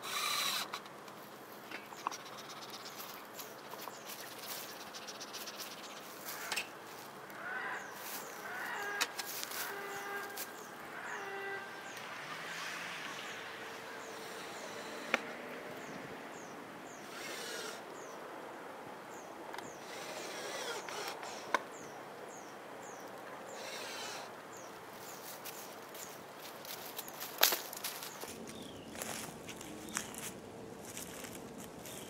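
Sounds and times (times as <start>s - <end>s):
cordless drill running: 0.0s - 0.8s, 14.1s - 15.3s, 17.1s - 17.8s, 19.8s - 21.5s, 23.6s - 24.3s.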